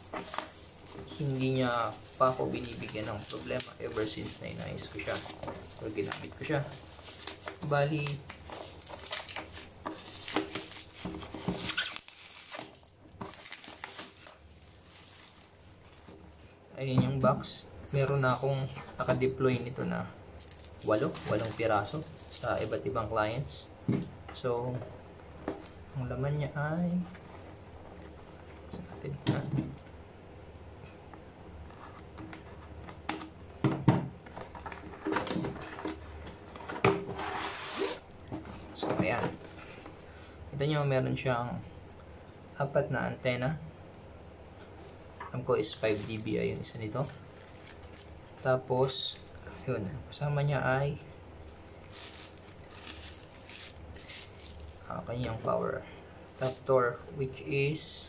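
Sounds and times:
bubble wrap crackling: 0.0 - 16.5, 17.9 - 23.0, 34.2 - 38.8, 45.5 - 49.4, 51.1 - 55.4, 56.2 - 57.2.

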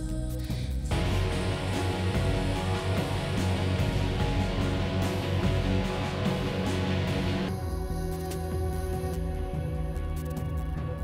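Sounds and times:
guitar music: 0.9 - 7.5.

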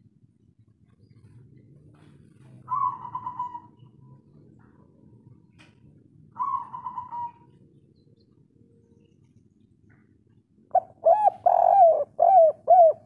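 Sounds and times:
dove cooing: 2.3 - 4.0, 6.3 - 7.6, 10.7 - 13.0.

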